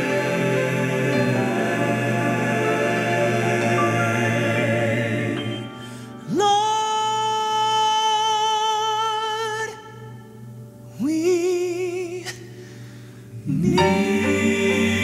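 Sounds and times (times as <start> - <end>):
group singing a chord: 0.0 - 6.3, 13.3 - 15.0.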